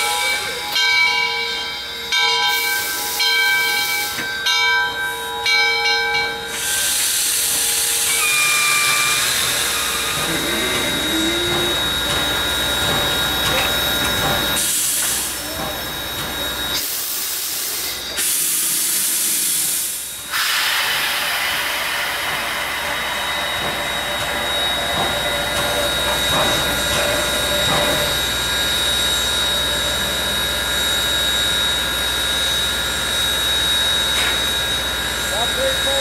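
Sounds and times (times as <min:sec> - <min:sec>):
steam locomotive hissing: 0:00.0 - 0:36.0
thin high whine: 0:08.1 - 0:13.5.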